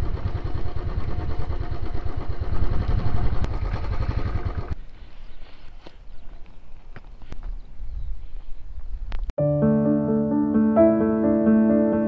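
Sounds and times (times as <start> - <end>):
motorcycle engine running at low revs: 0.0 - 4.8.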